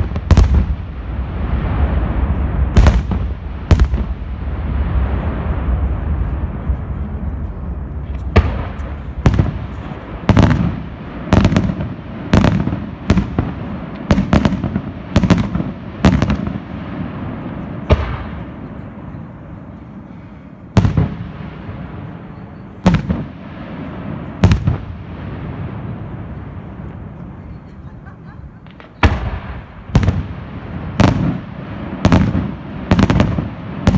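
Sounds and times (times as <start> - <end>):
low rumbling crackle: 0.0 - 20.3.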